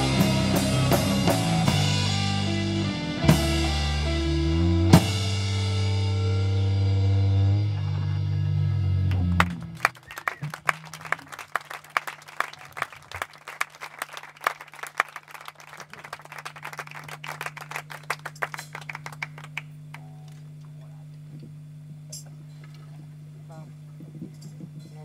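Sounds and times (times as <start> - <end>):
steady low hum: 0.0 - 25.0
audience applauding: 9.1 - 20.4.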